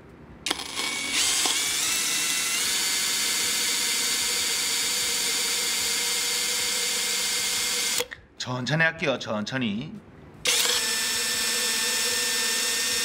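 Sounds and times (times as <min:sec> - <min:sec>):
power drill grinding into glass: 0:00.5 - 0:08.0.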